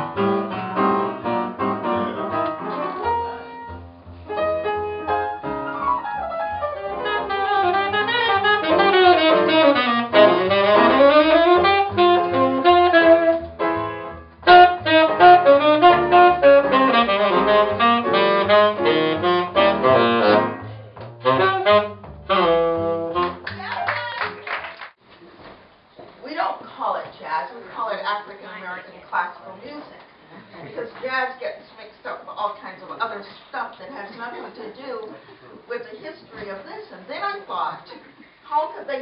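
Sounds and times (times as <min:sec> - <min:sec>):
walking double bass: 0:00.0 - 0:23.8
piano: 0:00.0 - 0:25.0
saxophone solo: 0:05.8 - 0:24.4.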